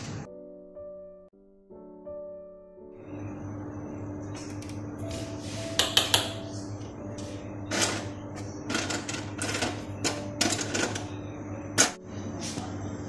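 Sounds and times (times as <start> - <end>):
steady low hum: 3.0 - 13.0.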